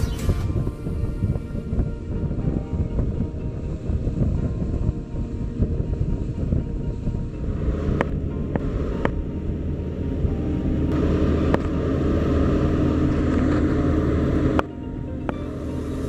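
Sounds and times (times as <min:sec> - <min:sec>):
speedboat engine running: 0:00.0 - 0:16.0.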